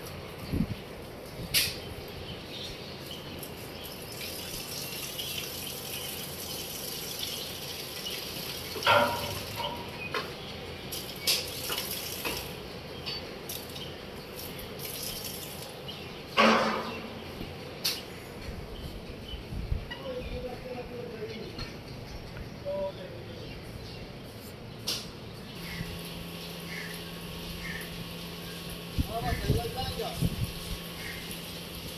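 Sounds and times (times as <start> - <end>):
liquid splashing on concrete: 10.9 - 12.6, 13.5 - 15.8
loud knocks: 16.4 - 17.1.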